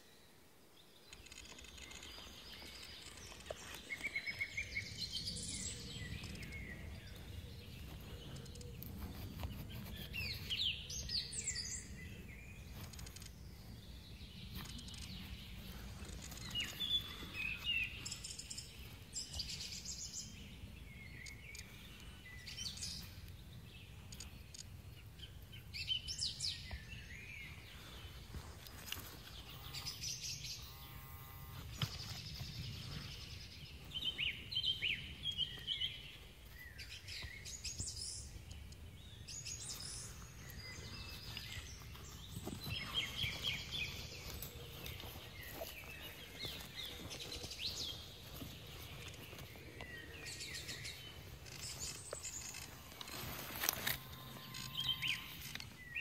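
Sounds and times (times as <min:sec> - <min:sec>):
small birds chirping: 0:00.0 - 0:56.0
metal detector buzzing tone: 0:29.5 - 0:31.8, 0:53.6 - 0:55.7.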